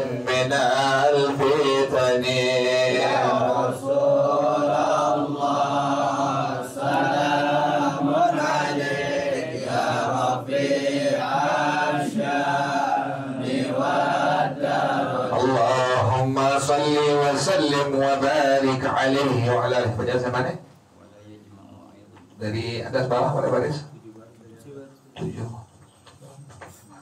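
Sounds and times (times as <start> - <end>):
men chanting: 0.0 - 20.4.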